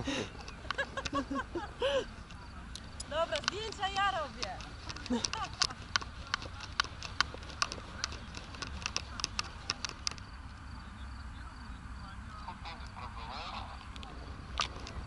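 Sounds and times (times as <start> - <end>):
sharp clicks: 2.2 - 10.3.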